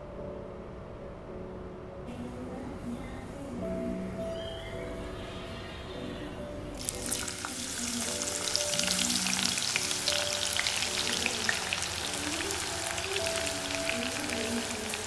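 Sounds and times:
onions sizzling in hot oil: 6.8s - 15.0s.

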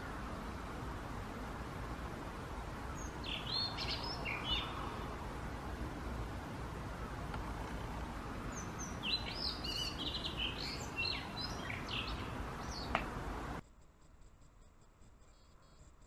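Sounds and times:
outdoor background hiss: 0.0s - 16.0s
bird singing warbling whistles: 8.6s - 12.9s.

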